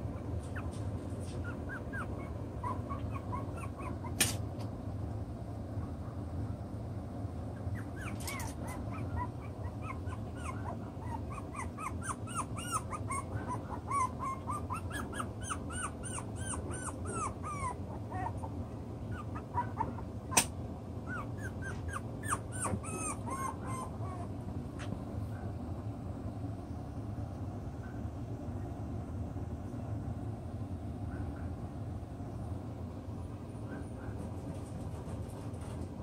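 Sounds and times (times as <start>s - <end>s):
puppies yipping and whining: 0.0s - 4.4s, 7.5s - 24.5s
sharp click: 4.2s - 4.7s, 20.4s - 20.6s.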